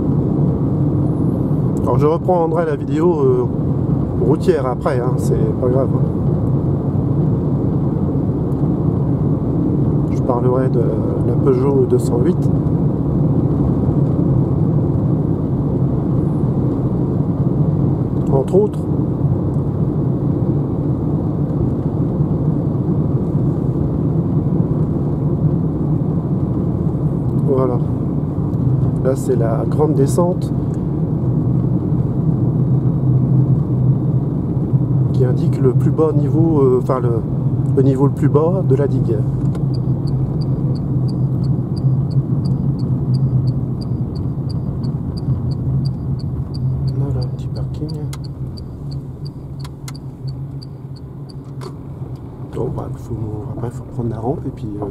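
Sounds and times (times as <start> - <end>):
road and tyre rumble: 0.0 - 54.9
wind noise in car: 0.0 - 54.9
turn indicator ticking: 39.4 - 52.3.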